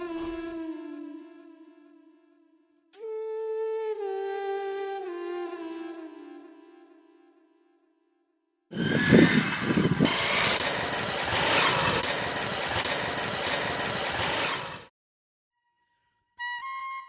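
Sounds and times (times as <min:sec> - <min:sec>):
motorcycle engine revving and idling: 0:08.8 - 0:14.9.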